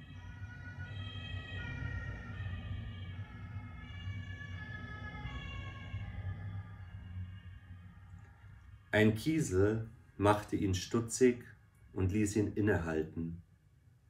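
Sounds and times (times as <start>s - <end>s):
two-tone emergency siren: 0.0s - 8.1s.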